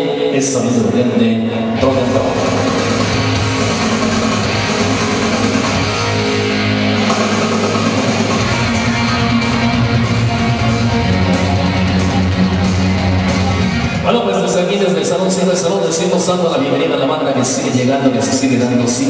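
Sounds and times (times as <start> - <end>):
bass line: 0.0 - 16.9
electric guitar: 0.0 - 19.0.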